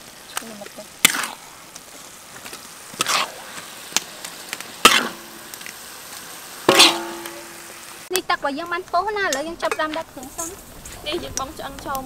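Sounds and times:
curry paste sizzling in a wok: 0.0 - 12.0
metal spatula scraping a pan: 1.0 - 1.4, 2.9 - 3.6, 4.8 - 5.5, 6.7 - 7.8.

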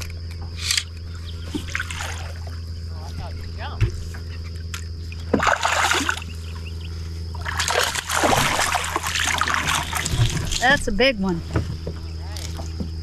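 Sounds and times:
fish thrashing and splashing: 1.4 - 2.7, 5.2 - 6.6, 7.2 - 10.9.

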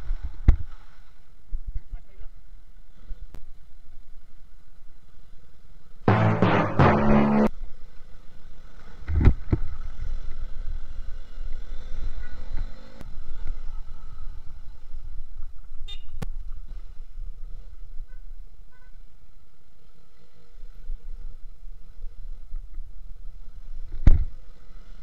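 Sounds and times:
horn honks: 6.1 - 7.5
loud thump: 6.1 - 7.5.

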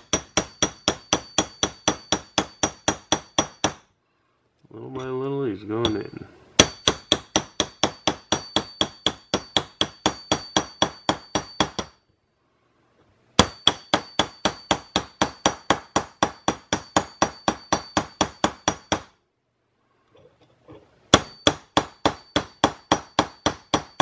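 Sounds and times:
small hammer tapping metal tool: 5.8 - 12.0.

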